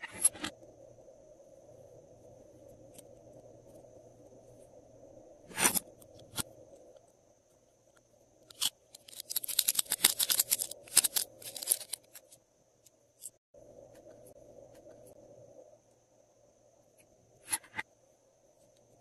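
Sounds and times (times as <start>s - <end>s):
metal cases clicking and clinking: 8.5s - 12.3s.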